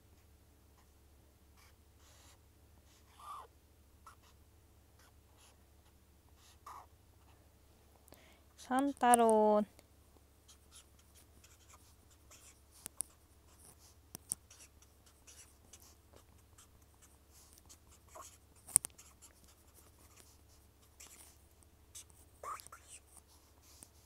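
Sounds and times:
pen scratching on paper: 1.6s - 3.4s, 4.0s - 4.4s, 5.0s - 5.6s, 6.4s - 6.9s, 10.5s - 24.0s.

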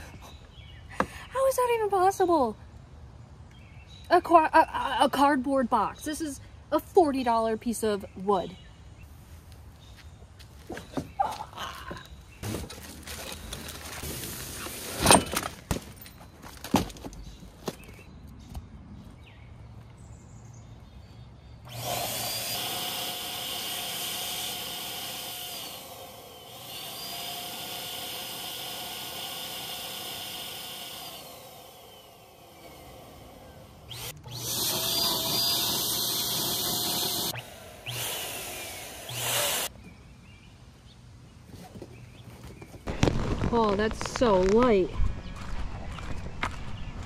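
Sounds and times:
electric air pump whining: 21.7s - 39.7s.

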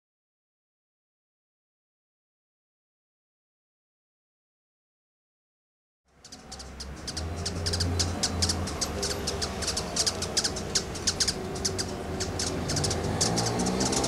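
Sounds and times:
hummingbird chip calls: 6.1s - 14.0s.

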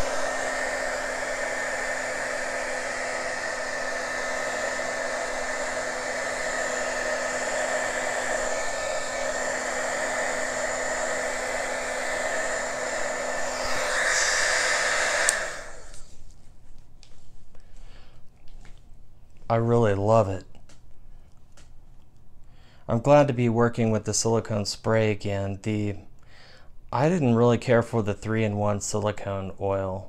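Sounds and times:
heat gun blowing air: 0.0s - 16.1s.

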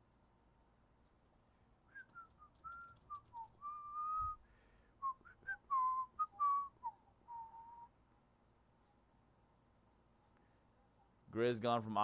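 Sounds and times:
man whistling a tune: 1.9s - 8.0s.

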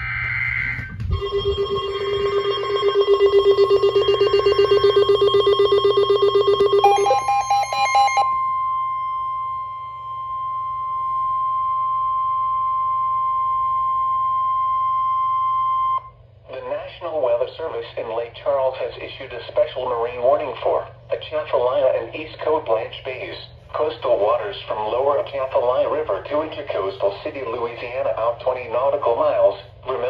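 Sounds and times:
weather radio alarm beeps: 0.0s - 16.1s
steady emergency warning tone: 0.0s - 16.2s.

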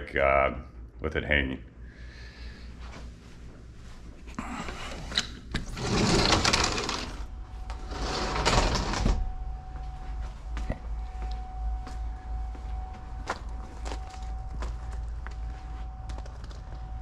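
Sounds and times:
low steady hum: 0.0s - 17.0s
sliding door rattling along track: 5.7s - 9.3s
thin steady tone: 9.0s - 17.0s.

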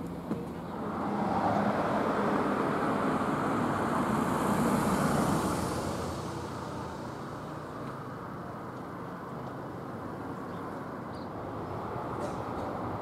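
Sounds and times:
vehicle passing by: 0.7s - 7.8s.

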